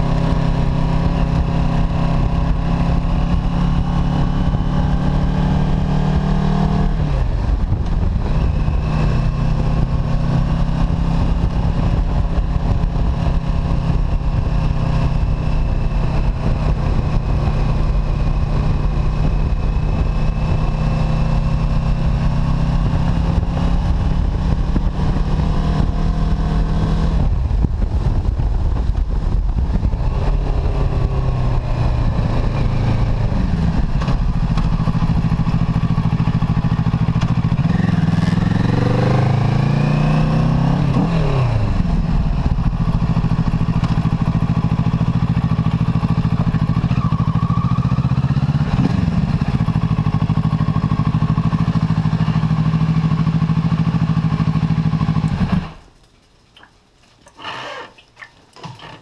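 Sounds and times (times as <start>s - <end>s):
wind rush: 0.0s - 47.7s
motorcycle engine running: 0.0s - 55.8s.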